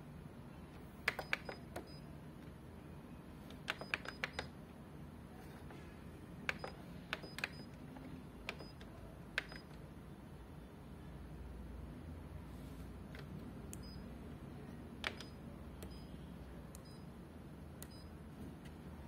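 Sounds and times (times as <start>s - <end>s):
copier keys clicking: 1.0s - 2.0s, 3.5s - 4.6s, 6.4s - 7.8s, 8.4s - 9.8s.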